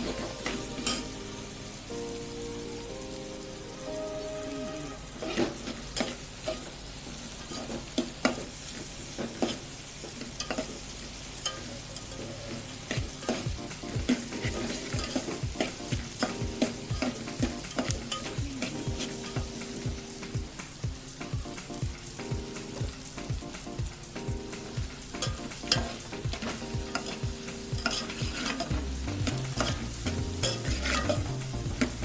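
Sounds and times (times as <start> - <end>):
food sizzling: 0.0 - 32.0
spoon scraping pot: 27.8 - 28.7, 30.4 - 31.9.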